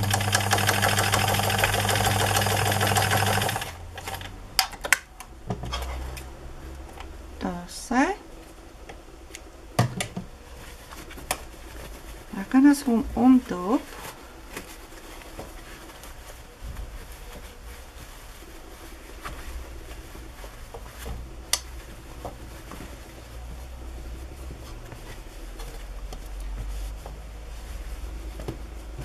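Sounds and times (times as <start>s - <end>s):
fabric rustling: 10.2s - 29.0s.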